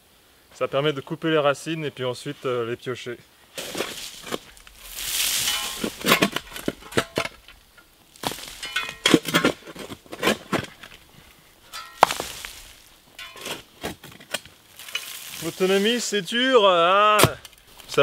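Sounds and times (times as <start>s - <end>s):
digging tool striking soil: 3.6s - 11.0s, 11.7s - 15.7s, 17.1s - 17.5s
blade clinking on stones: 5.2s - 10.9s, 11.6s - 15.5s.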